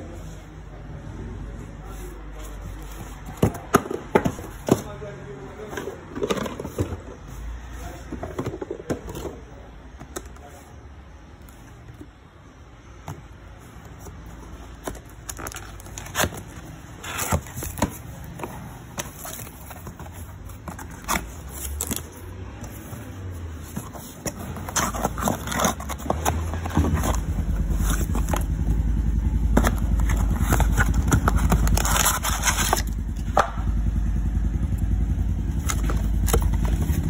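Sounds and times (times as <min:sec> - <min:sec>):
cardboard boxes handled: 0:01.6 - 0:33.4, 0:34.6 - 0:37.0.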